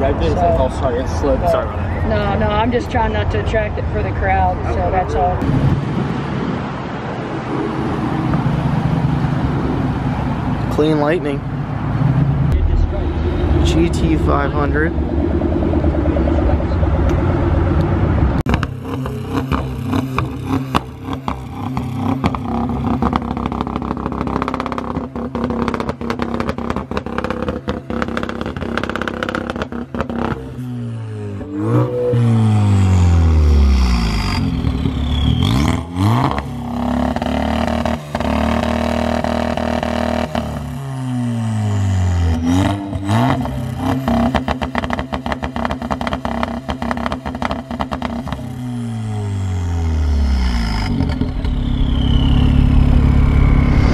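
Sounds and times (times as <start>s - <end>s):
car engine idling and revving: 0.0s - 53.9s.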